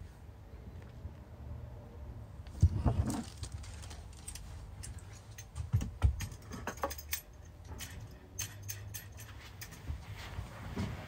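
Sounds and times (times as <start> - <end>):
light metallic clicks and clinks: 3.6 - 10.3.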